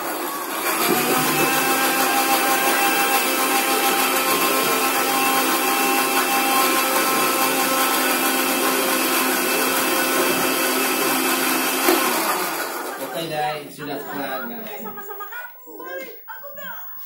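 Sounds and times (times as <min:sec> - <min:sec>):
blender motor whine: 0:00.0 - 0:13.2.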